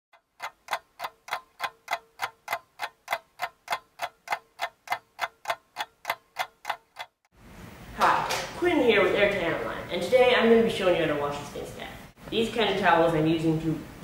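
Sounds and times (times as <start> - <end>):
sharp regular ticking: 0.1 - 7.3.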